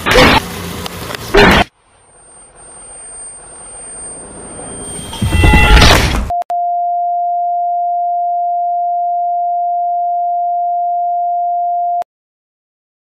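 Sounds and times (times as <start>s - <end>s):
steady electronic beep: 2.3s - 10.9s.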